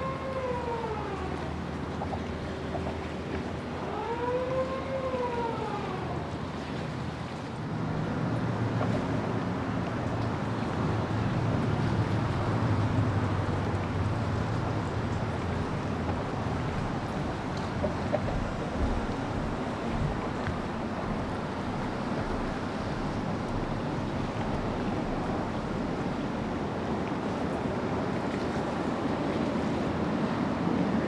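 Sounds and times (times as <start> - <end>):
warning siren wailing: 0.0 - 1.8, 3.7 - 6.5.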